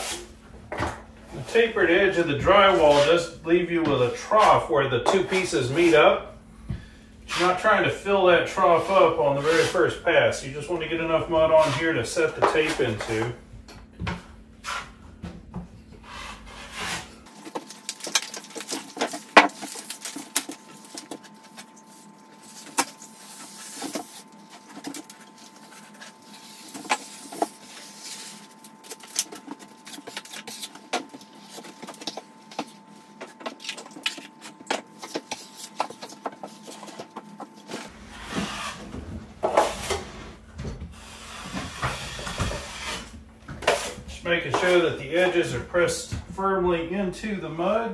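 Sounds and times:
knife smoothing compound on drywall: 0:02.6 - 0:03.3, 0:08.5 - 0:10.0, 0:11.4 - 0:13.2, 0:16.0 - 0:17.2, 0:37.7 - 0:40.3, 0:41.0 - 0:44.0
taping knife scraping mud pan: 0:02.6 - 0:03.3, 0:08.5 - 0:10.0, 0:11.5 - 0:13.3, 0:16.0 - 0:32.8, 0:41.0 - 0:45.4.

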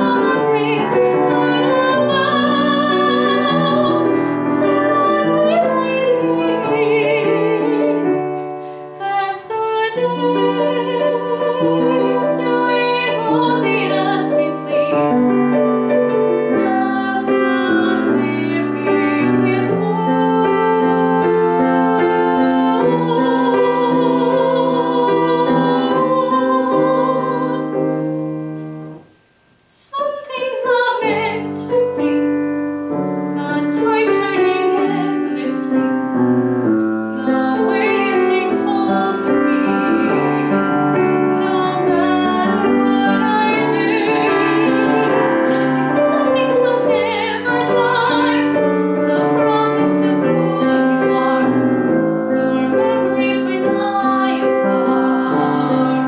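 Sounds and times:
woman singing: 0:00.0 - 0:28.0, 0:29.6 - 0:36.2, 0:37.0 - 0:56.0
grand piano accompaniment: 0:00.0 - 0:29.2, 0:30.1 - 0:56.0.

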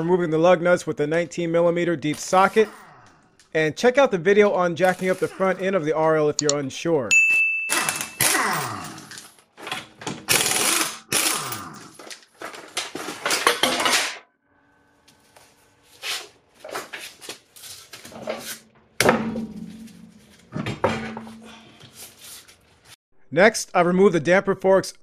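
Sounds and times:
impact wrench removing lug nuts: 0:07.7 - 0:08.4, 0:09.6 - 0:11.4.

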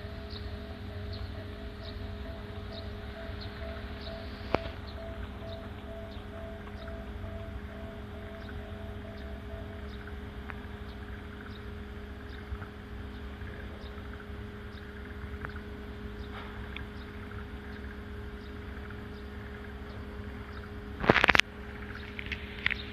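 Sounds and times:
faint high chirps: 0:00.0 - 0:18.6
low engine drone: 0:00.0 - 0:22.9.

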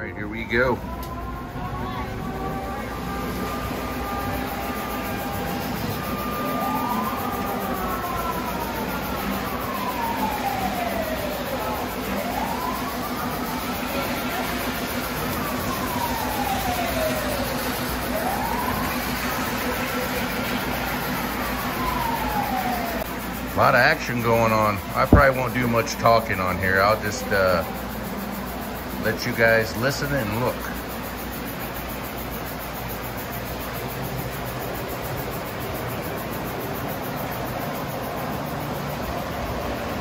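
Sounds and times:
siren wailing: 0:00.0 - 0:40.0.

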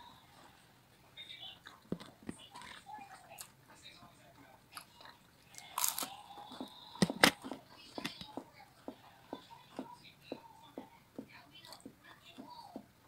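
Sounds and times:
chewing crunchy crust: 0:04.7 - 0:09.0.

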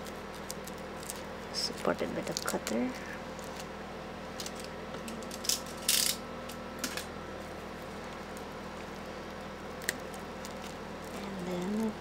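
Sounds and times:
plastic shrink wrap crinkling: 0:00.0 - 0:03.7, 0:07.4 - 0:12.0.

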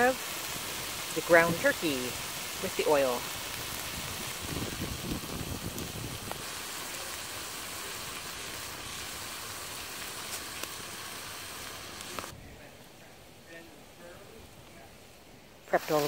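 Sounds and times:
meat sizzling in oil: 0:00.0 - 0:12.3, 0:15.7 - 0:16.0.

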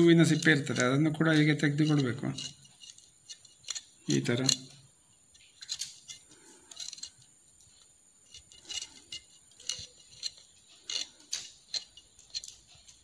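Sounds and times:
metal blade scraping seeds: 0:00.0 - 0:13.0.

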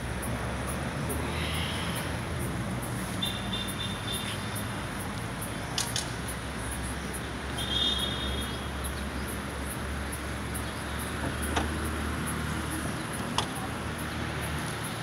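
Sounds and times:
city background noise: 0:00.0 - 0:15.0
sharp clicks: 0:05.7 - 0:06.4.

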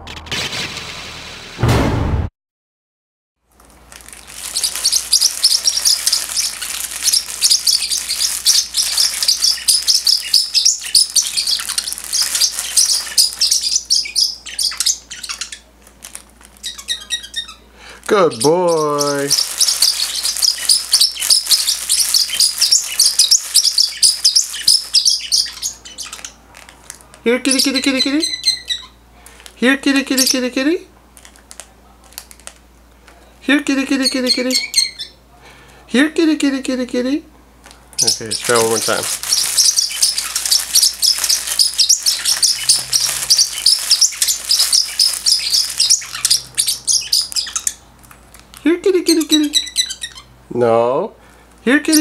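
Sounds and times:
plastic bag crinkling: 0:03.5 - 0:17.2, 0:17.9 - 0:27.2, 0:31.1 - 0:32.7, 0:37.6 - 0:48.7
parrotlet chirping rapidly: 0:04.0 - 0:26.4, 0:27.4 - 0:29.0, 0:33.8 - 0:35.2, 0:38.0 - 0:48.0, 0:49.0 - 0:50.5, 0:51.7 - 0:52.0.

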